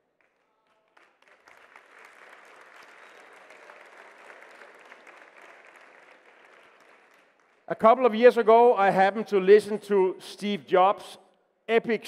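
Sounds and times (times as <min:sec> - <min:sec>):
audience applauding: 0:00.2 - 0:07.7.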